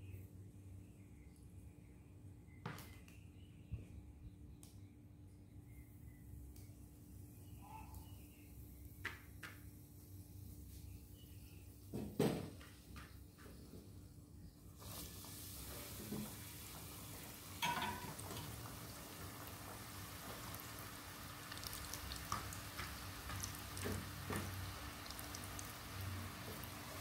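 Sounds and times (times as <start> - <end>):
knock: 11.9 - 12.5
chicken sizzling in hot oil: 14.8 - 27.0.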